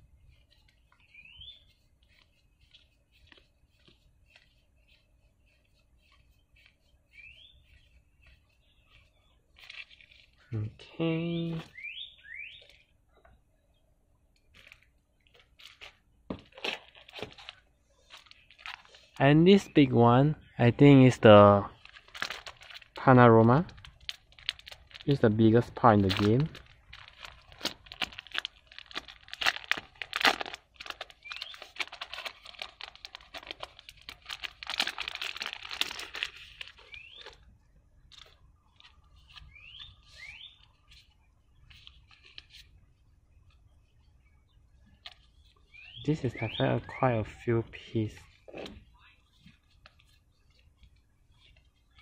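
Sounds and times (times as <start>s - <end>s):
faint rustling: 0.0s - 10.6s
plastic bag crinkling: 7.6s - 10.5s, 14.5s - 19.2s, 21.7s - 42.8s.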